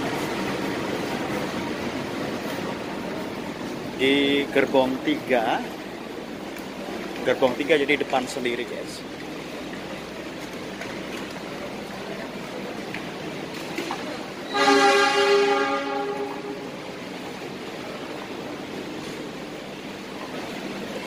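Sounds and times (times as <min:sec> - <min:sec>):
railway platform background noise: 0:00.0 - 0:21.0
train horn: 0:14.5 - 0:16.8.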